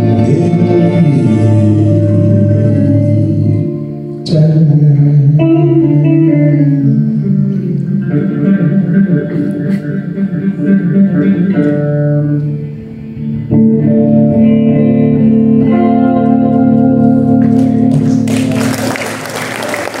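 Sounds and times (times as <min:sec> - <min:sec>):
electric guitar chords: 0:00.0 - 0:20.0
audience applause: 0:17.4 - 0:20.0.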